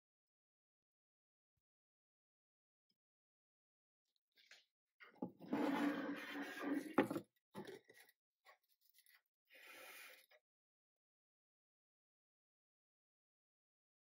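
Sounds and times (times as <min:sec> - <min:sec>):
glass dish scraping: 0:05.2 - 0:07.2.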